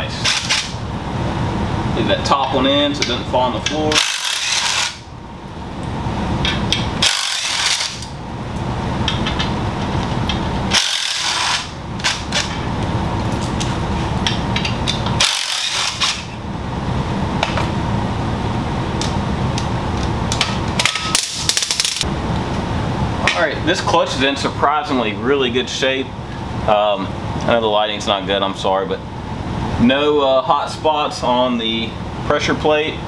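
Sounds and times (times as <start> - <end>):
cordless drill running: 10.7 - 11.7, 15.2 - 16.2.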